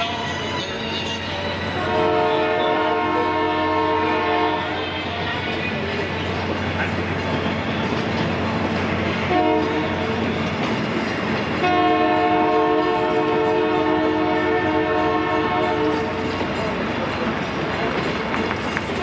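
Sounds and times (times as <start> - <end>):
train wheels clacking over rails: 0.0 - 19.0
train air horn blasts: 1.8 - 5.2, 9.3 - 10.1, 11.6 - 16.2.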